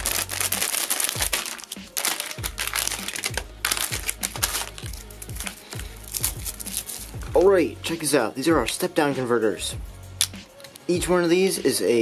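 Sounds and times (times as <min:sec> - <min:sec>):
scissors cutting plastic: 0:00.0 - 0:07.1
plastic packaging crinkling: 0:00.0 - 0:07.2
background music with bass beat: 0:00.0 - 0:12.0.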